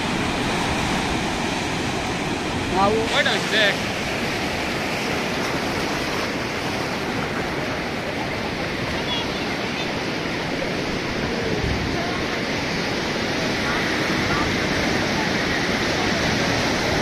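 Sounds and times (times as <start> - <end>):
sea surf breaking on beach: 0.0 - 17.0.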